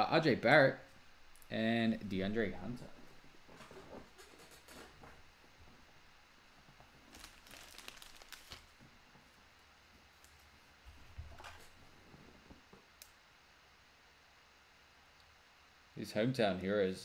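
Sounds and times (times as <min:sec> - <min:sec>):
foil wrapper crinkling and tearing: 0:07.1 - 0:08.8.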